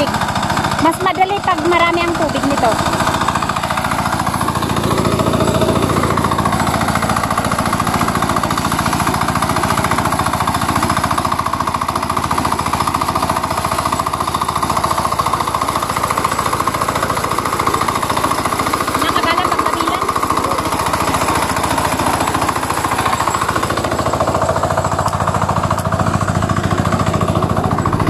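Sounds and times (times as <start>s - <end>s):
diesel engine chugging: 0.0s - 28.0s.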